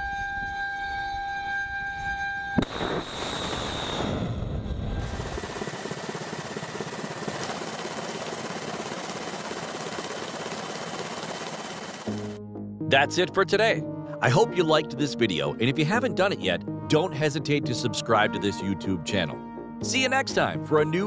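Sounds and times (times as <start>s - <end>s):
missile launch blast: 2.6s - 5.1s
steady high whine: 2.6s - 12.4s.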